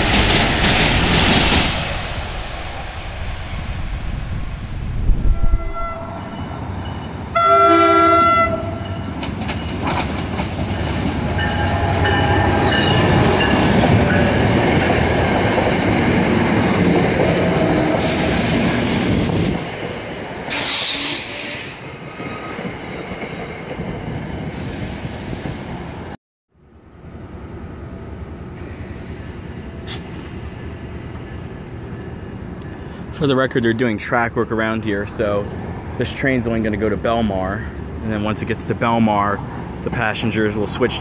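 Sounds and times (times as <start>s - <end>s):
train horn blast: 5.2s - 6.4s, 7.4s - 8.9s
train wheels clattering on rails: 9.0s - 18.2s
high-pitched wheel squeals: 22.9s - 26.2s.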